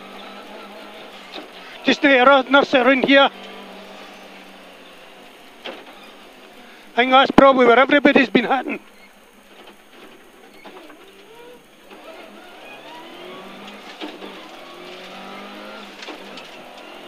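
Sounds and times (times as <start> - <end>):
rally car engine accelerating: 0.0 - 17.0.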